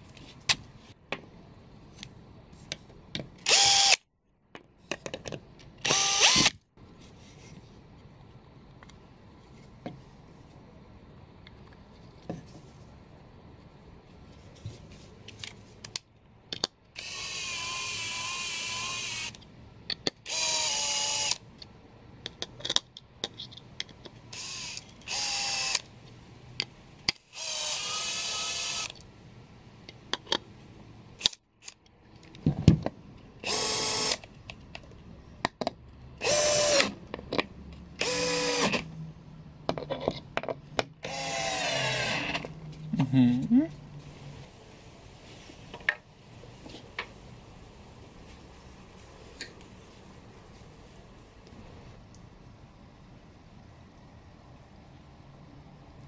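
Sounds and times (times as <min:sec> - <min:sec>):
drill driving screws into wood: 0:03.4 - 0:04.0, 0:05.8 - 0:06.6, 0:17.0 - 0:19.4, 0:20.2 - 0:21.4, 0:24.3 - 0:25.9, 0:27.1 - 0:29.0, 0:33.4 - 0:34.2, 0:36.2 - 0:37.0, 0:38.0 - 0:38.8, 0:41.0 - 0:42.4.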